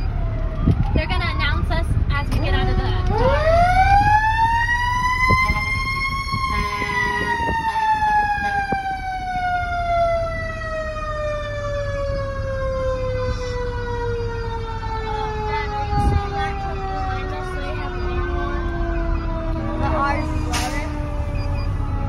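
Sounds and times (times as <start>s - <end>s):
fire truck siren wailing: 0.0s - 22.0s
truck engine rumble: 0.0s - 22.0s.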